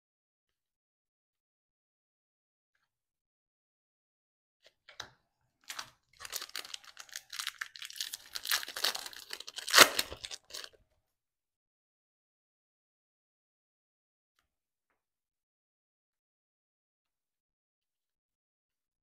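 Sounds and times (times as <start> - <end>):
wrapper crinkling and tearing: 5.7 - 10.8.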